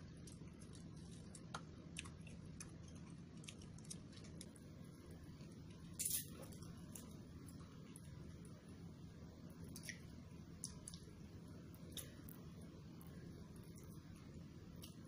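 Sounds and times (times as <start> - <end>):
chewing and mouth clicks: 0.2 - 4.6, 10.6 - 11.1.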